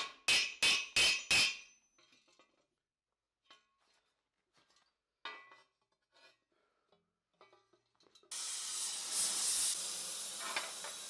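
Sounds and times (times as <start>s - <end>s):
hammer striking metal plate: 0.0s - 1.8s.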